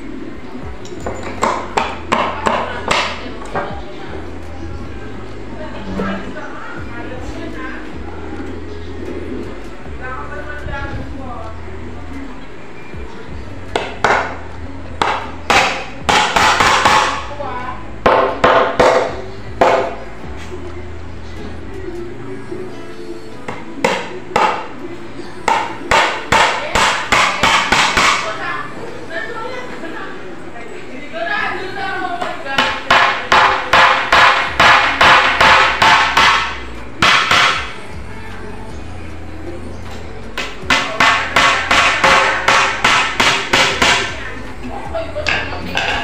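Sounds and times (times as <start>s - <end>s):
hammer striking nails into wood: 15.0s - 17.2s, 18.1s - 19.9s, 25.5s - 28.2s, 32.6s - 37.7s, 40.4s - 44.1s.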